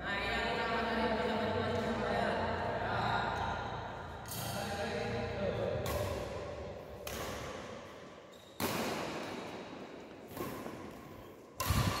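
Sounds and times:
rackets hitting shuttlecock: 0:05.7 - 0:12.0.

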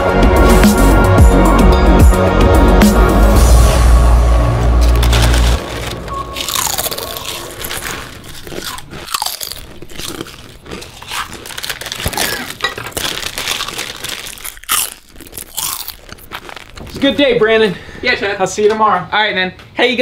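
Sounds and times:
chips crunching: 0:04.6 - 0:17.4
foil bag crinkling: 0:04.6 - 0:17.6.

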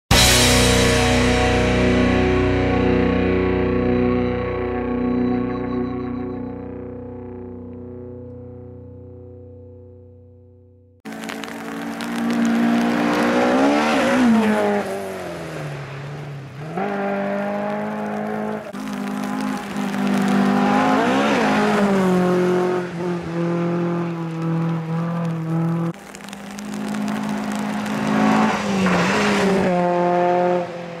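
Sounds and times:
car passing by: 0:11.1 - 0:25.9, 0:26.8 - 0:31.0
rally car engines revving: 0:11.1 - 0:26.0, 0:26.8 - 0:31.0.

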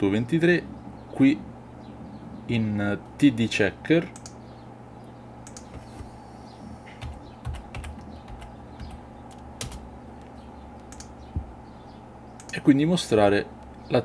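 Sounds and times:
keyboard typing: 0:05.4 - 0:06.1, 0:07.0 - 0:09.8, 0:10.8 - 0:11.5.

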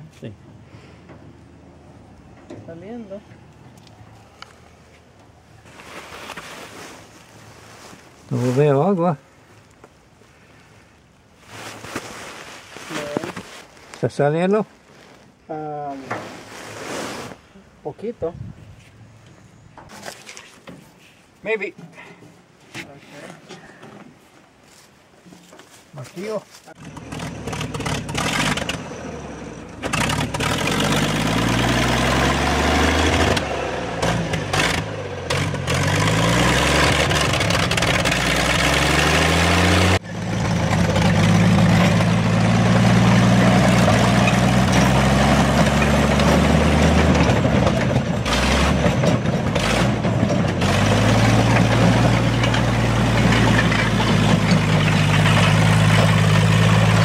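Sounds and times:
tractor engine revving: 0:26.8 - 0:57.0.

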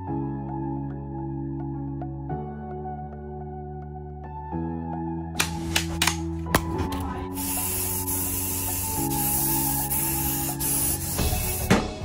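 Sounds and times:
aerosol spray hissing: 0:07.3 - 0:11.8.

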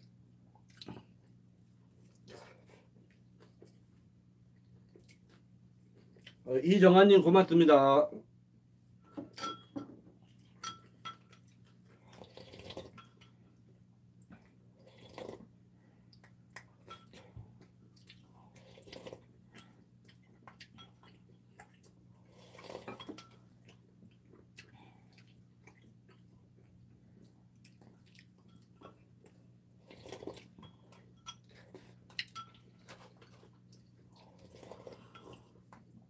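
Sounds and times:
cutlery clinking on ceramic bowls: 0:09.1 - 0:09.9, 0:10.5 - 0:11.5, 0:16.8 - 0:17.3, 0:22.8 - 0:23.5, 0:30.5 - 0:33.4.

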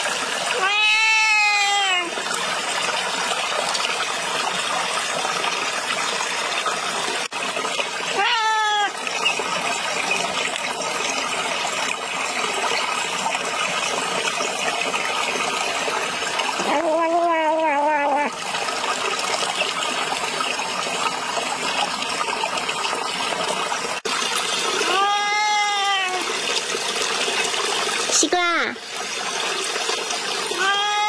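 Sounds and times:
cat meowing: 0:00.6 - 0:02.1, 0:08.2 - 0:09.0, 0:16.6 - 0:18.3, 0:24.8 - 0:26.2, 0:30.6 - 0:31.0.

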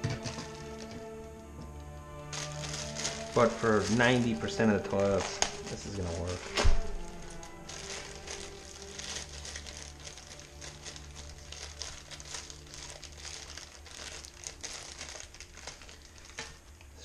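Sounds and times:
crinkling and rustling: 0:00.0 - 0:17.0.

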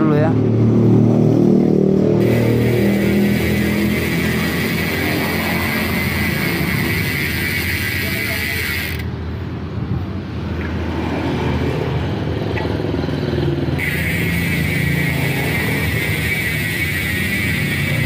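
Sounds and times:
bicycle hub ratcheting buzz: 0:01.9 - 0:09.5, 0:13.1 - 0:18.0.

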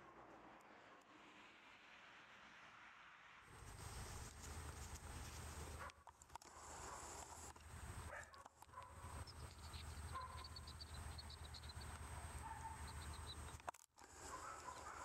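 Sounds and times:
small birds twittering: 0:06.7 - 0:15.0.

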